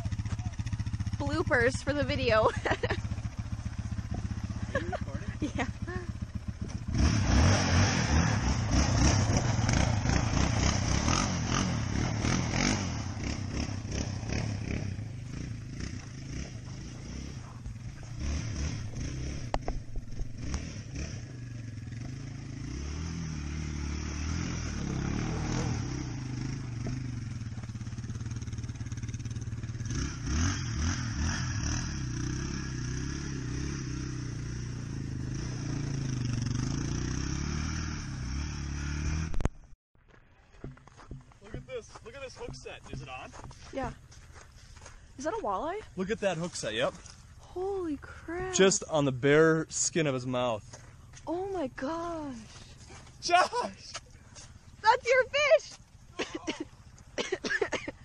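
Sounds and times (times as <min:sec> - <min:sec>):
quad engine revving: 0:00.0 - 0:39.5.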